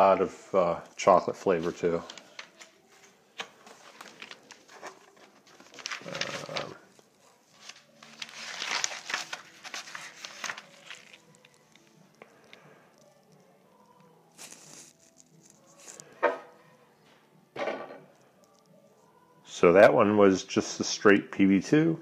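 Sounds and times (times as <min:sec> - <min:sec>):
paper rustling: 0:01.4 - 0:12.6, 0:14.4 - 0:16.2.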